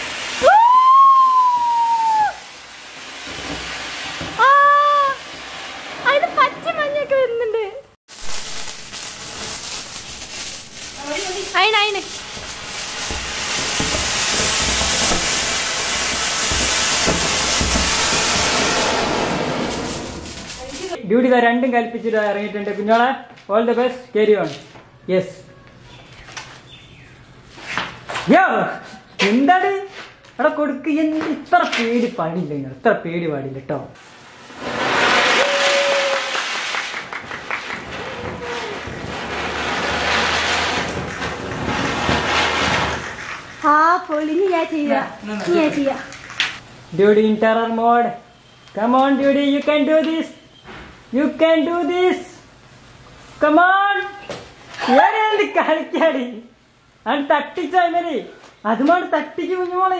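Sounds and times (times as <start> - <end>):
firework hissing spraying sparks: 0.0 - 7.0, 8.1 - 21.0, 34.0 - 44.8.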